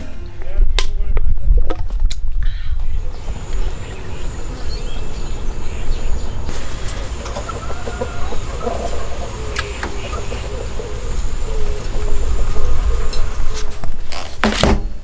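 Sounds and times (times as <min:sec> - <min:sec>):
low rumble: 0:00.0 - 0:14.0
chickens clucking: 0:03.0 - 0:13.8.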